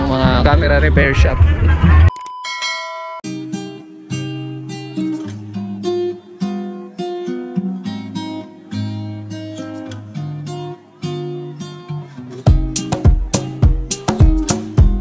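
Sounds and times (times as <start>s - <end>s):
acoustic guitar strumming: 3.2s - 15.0s.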